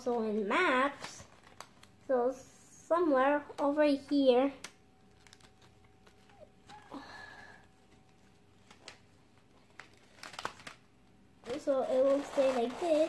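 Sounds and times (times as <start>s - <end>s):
faint paper clicks: 1.0s - 2.0s, 4.6s - 7.0s, 7.8s - 10.8s
child breathing softly: 6.7s - 7.8s.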